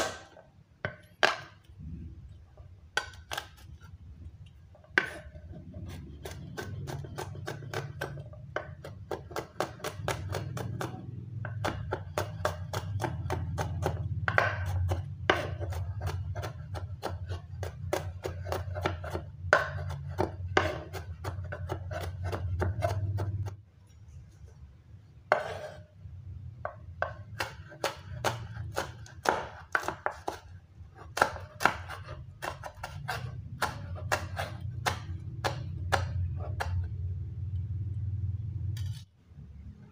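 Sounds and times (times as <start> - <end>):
knife chopping on wooden board: 0.0 - 1.6, 4.9 - 23.6, 25.3 - 25.8, 26.6 - 36.9.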